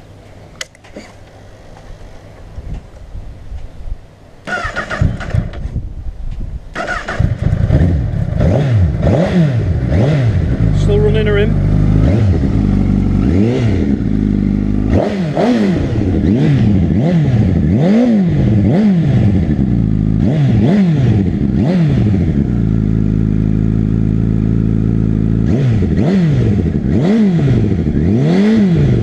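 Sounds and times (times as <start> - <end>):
motorcycle engine revving: 4.5 - 5.8, 6.7 - 29.0.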